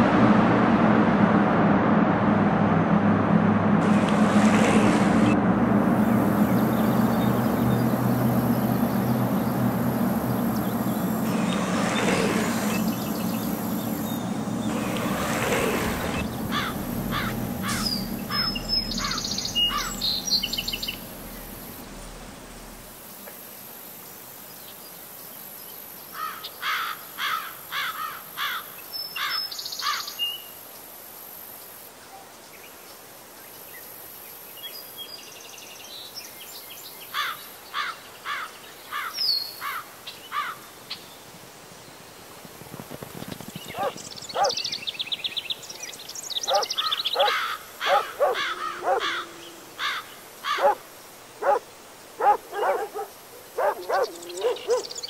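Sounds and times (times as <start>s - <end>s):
low steady rumble: 0.0s - 23.1s
birds singing: 6.1s - 22.9s, 43.2s - 51.6s, 52.2s - 55.0s.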